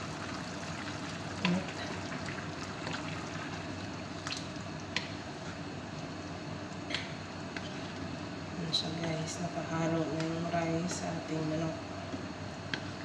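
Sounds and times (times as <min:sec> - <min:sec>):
wooden spoon stirring in a pot: 0:00.3 - 0:03.8.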